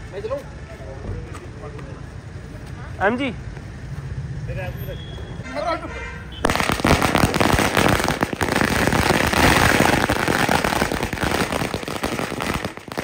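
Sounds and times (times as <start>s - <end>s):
firecrackers banging rapidly: 6.4s - 13.0s.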